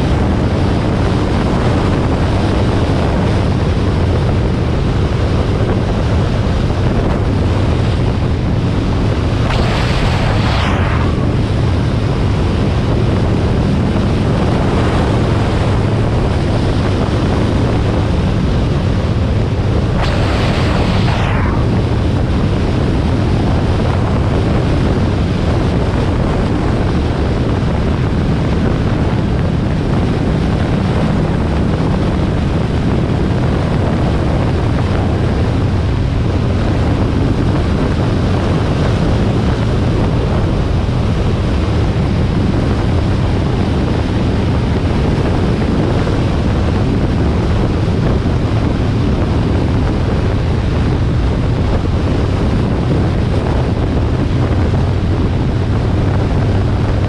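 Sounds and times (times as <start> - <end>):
motorcycle engine droning: 0.0 - 25.6
wind rush on microphone: 0.0 - 57.0.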